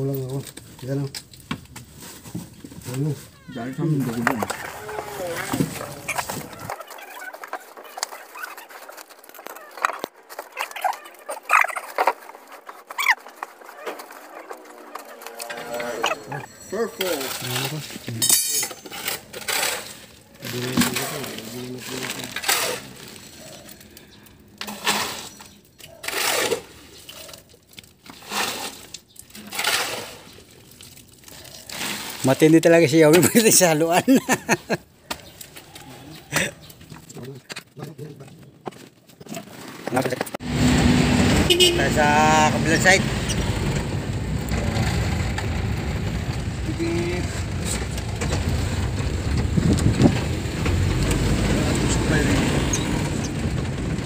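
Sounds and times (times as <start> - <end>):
shovel scraping wet concrete: 1.8 - 23.9, 24.6 - 34.1
van engine and road rumble: 40.4 - 54.0
vehicle bump: 40.4 - 54.0.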